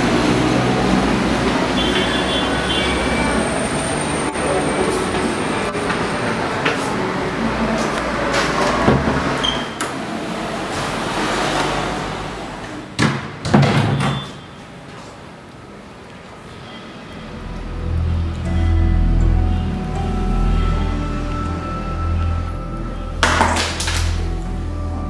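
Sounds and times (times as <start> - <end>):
steady rushing background noise: 0.0 - 13.0
wooden door opening and shutting: 13.0 - 14.5.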